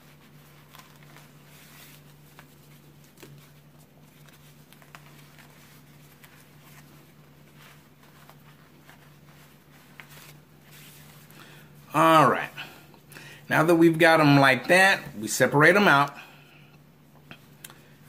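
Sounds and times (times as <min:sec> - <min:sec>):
rustling of neckties being handled: 0:00.0 - 0:11.9
low steady hum: 0:00.0 - 0:18.0.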